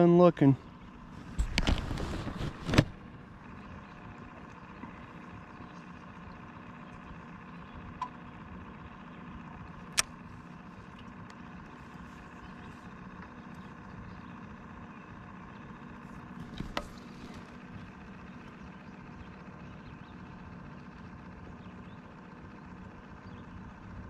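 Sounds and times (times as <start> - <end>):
faint hum: 0.0 - 24.0
camera handling rustling: 1.2 - 3.1, 16.3 - 17.5.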